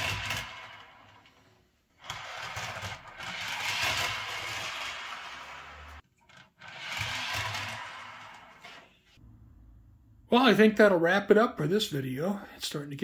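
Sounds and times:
model train wheels rolling on rails: 0.0s - 9.2s.

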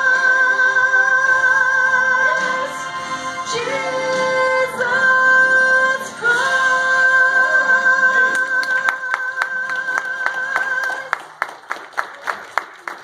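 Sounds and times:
people clapping: 8.1s - 13.0s.

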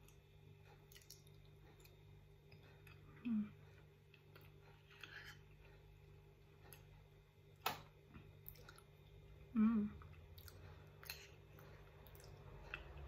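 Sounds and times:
person chewing: 0.0s - 13.0s
person murmuring: 9.5s - 10.0s.

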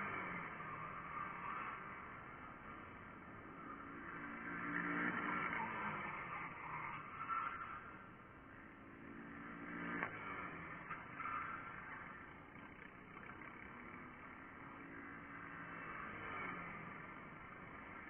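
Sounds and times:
distant kart engines: 0.0s - 18.0s
kart engine passing: 0.0s - 18.0s.

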